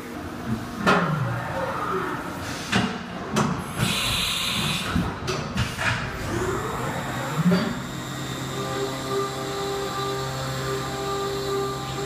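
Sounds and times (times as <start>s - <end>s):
high machine whine: 6.1s - 12.0s
milling machine noise: 6.2s - 12.0s.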